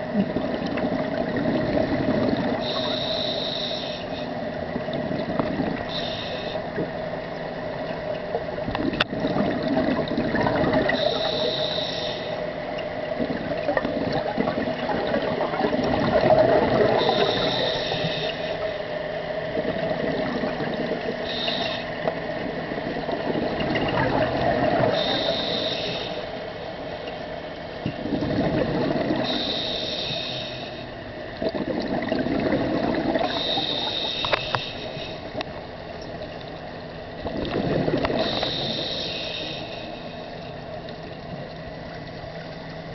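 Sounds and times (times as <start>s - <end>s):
rush of bubbles: 0.0s - 2.7s, 8.8s - 11.2s, 13.2s - 17.4s, 23.0s - 25.2s, 28.0s - 29.4s, 31.4s - 33.6s, 37.2s - 38.7s
steady hum: 0.0s - 42.9s
regulator inhale hiss: 2.6s - 4.4s, 5.8s - 6.8s, 10.9s - 12.7s, 17.0s - 18.9s, 21.2s - 22.1s, 24.9s - 27.1s, 29.2s - 31.0s, 33.2s - 35.4s, 38.2s - 40.7s.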